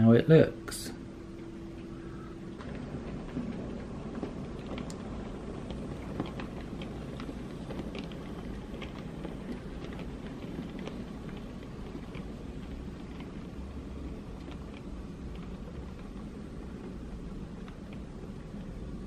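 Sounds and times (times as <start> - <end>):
model train rumbling on track: 0.0 - 19.0.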